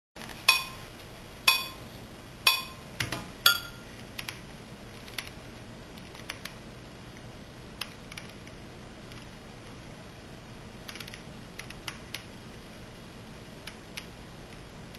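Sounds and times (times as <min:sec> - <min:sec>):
sharp ringing clinks: 0:03.5 - 0:03.8.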